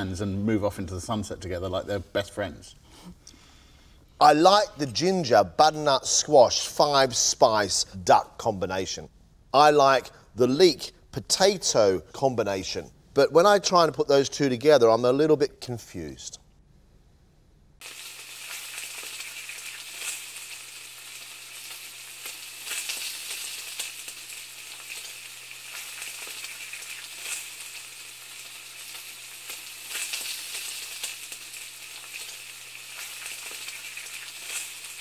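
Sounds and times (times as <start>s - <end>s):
food frying with crackles: 17.8s - 35.0s.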